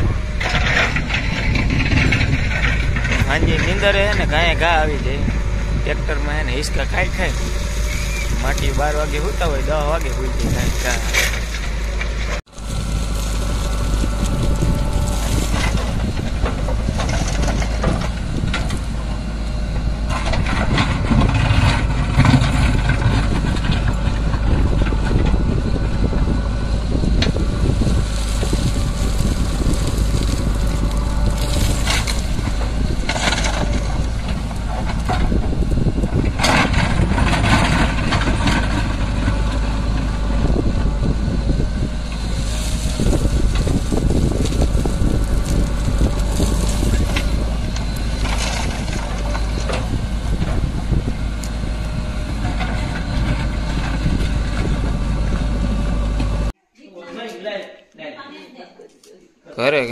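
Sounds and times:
rock scraping steel bucket: 0:00.0 - 0:19.0, 0:27.3 - 0:40.5, 0:41.6 - 0:50.8
diesel engine running: 0:00.0 - 0:56.6.

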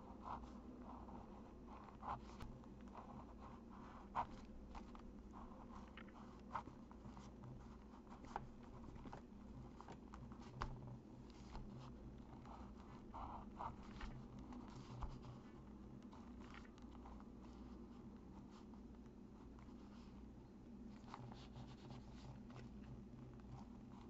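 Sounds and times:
pen scratching on paper: 0:00.0 - 0:18.7.

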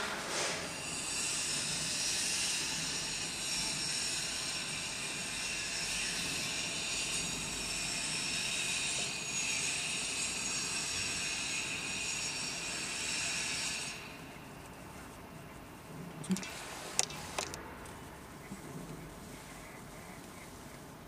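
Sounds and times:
steady hiss: 0:08.6 - 0:21.0.

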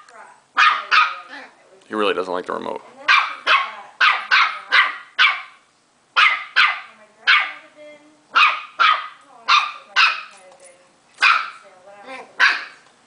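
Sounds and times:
puppy barking: 0:00.6 - 0:01.3, 0:03.1 - 0:07.6, 0:08.3 - 0:10.4, 0:11.2 - 0:11.6, 0:12.4 - 0:12.8.

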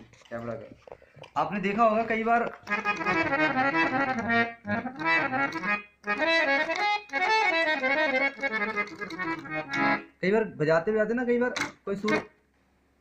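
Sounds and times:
harmonium playing: 0:01.7 - 0:10.2, 0:12.0 - 0:12.3.

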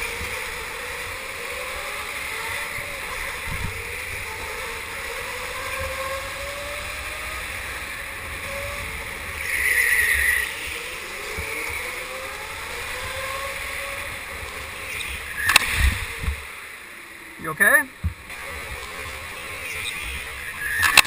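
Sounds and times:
kart motors whining: 0:00.0 - 0:21.0
wind and tyre noise: 0:00.0 - 0:21.0.

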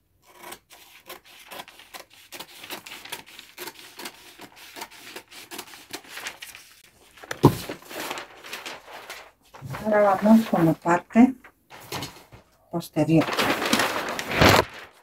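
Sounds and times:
scissors cutting paper: 0:00.2 - 0:06.2
paper rustling: 0:01.5 - 0:15.0.

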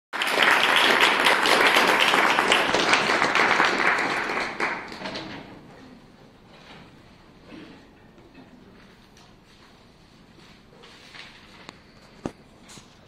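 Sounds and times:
audience applauding: 0:00.2 - 0:05.3.

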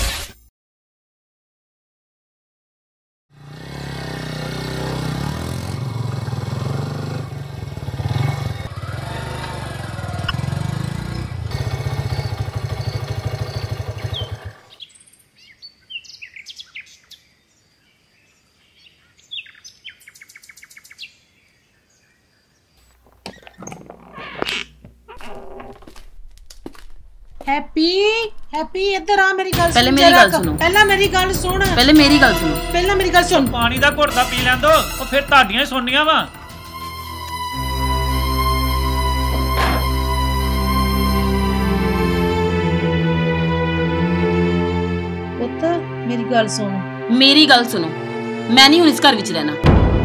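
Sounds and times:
motorcycle engine rumbling: 0:03.4 - 0:14.8, 0:22.9 - 0:42.6
birds chirping: 0:12.1 - 0:24.4
sharp knocks: 0:49.6 - 0:50.0.

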